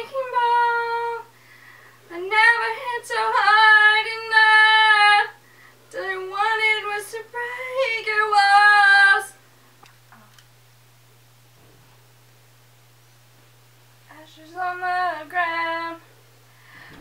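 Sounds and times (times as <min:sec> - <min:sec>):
woman singing unaccompanied: 0:00.0 - 0:01.3, 0:02.1 - 0:09.4, 0:14.0 - 0:16.1.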